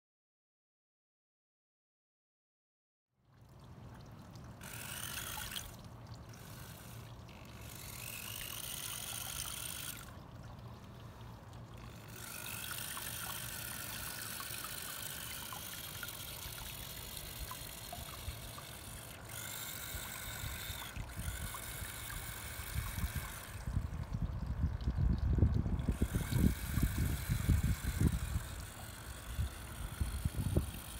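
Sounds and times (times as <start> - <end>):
small gear motors whining: 4.6 - 10.2, 10.8 - 24.2, 25.5 - 30.9.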